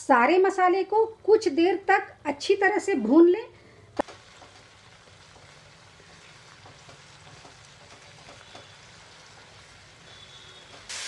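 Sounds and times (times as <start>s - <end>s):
spatula stirring in pan: 4.0s - 10.9s
paste sizzling in oil: 4.0s - 11.0s.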